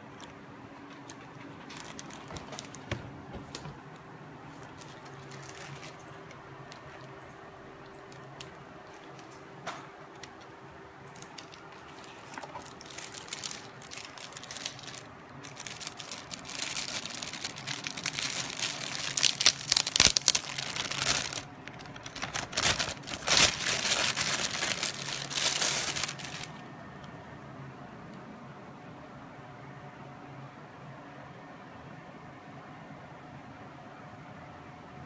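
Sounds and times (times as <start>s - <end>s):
plastic bag crinkling: 0.8s - 3.8s, 4.4s - 7.2s, 7.9s - 26.6s.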